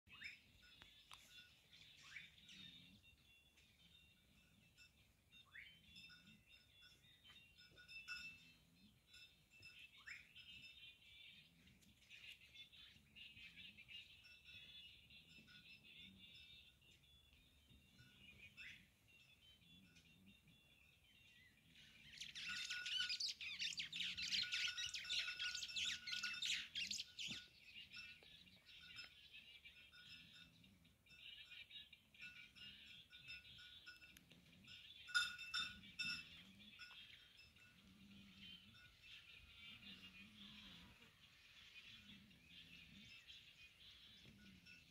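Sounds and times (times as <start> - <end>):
faint birds chirping: 0.1 - 44.9.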